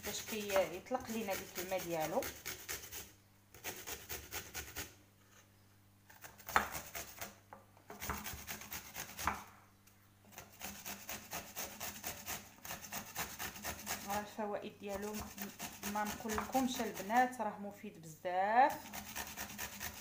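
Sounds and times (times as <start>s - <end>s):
cucumber rasping on metal grater: 0.0s - 5.0s, 8.0s - 9.3s, 10.3s - 17.4s, 18.7s - 20.0s.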